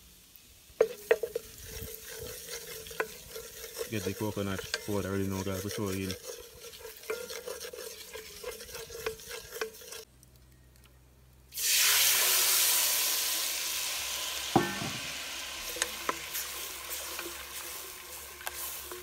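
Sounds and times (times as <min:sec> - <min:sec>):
liquid sizzling in hot oil: 0:00.0 - 0:10.1, 0:11.5 - 0:19.0
wooden spoon stirring: 0:00.8 - 0:10.1, 0:15.6 - 0:19.0.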